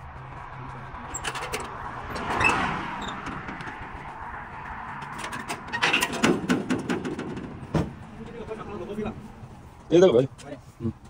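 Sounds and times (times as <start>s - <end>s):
passing highway traffic: 0.0s - 11.0s
metal truck gates clanking: 1.0s - 3.8s, 5.0s - 7.9s.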